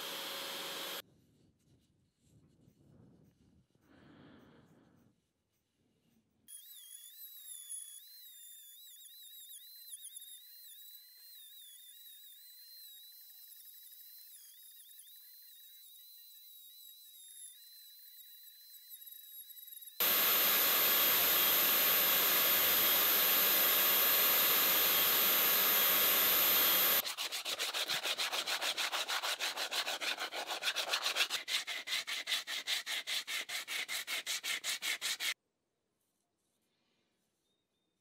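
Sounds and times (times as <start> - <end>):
rotary tool sanding wood: 0.0 - 1.0, 20.0 - 35.4
sandpaper rubbing wood by hand: 20.0 - 35.4.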